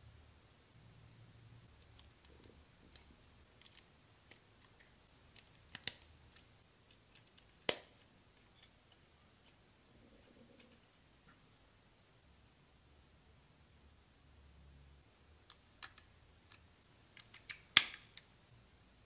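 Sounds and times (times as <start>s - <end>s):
plastic building bricks clicking: 1.8s - 7.9s, 15.4s - 18.3s.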